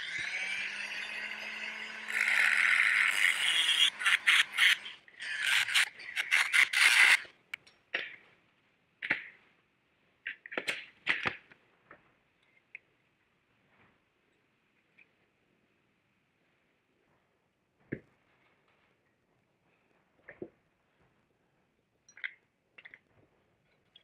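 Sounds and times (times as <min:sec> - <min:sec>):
rotary tool cutting copper sheet: 0:00.0 - 0:07.3
rotary tool whining: 0:00.0 - 0:07.3.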